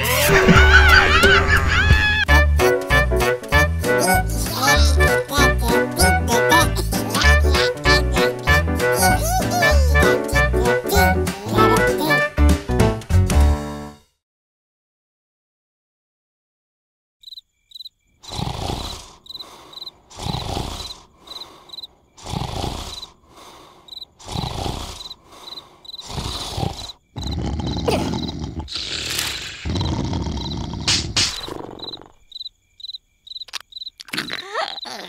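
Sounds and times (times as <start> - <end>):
cartoon snoring: 3.8 - 12.0, 18.2 - 32.3, 34.0 - 35.0
cricket chirps: 17.2 - 35.0.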